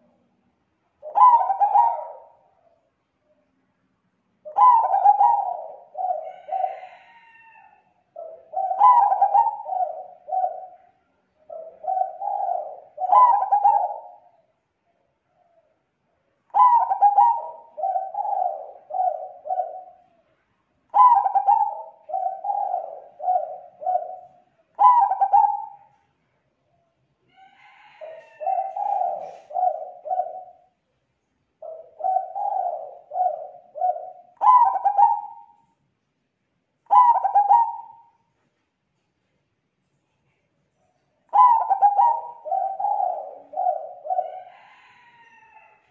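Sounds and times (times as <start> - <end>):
dove cooing: 1.0 - 2.8, 4.4 - 14.5, 16.5 - 20.3, 20.9 - 26.0, 27.4 - 30.8, 31.6 - 35.6, 36.8 - 38.2, 41.3 - 45.9.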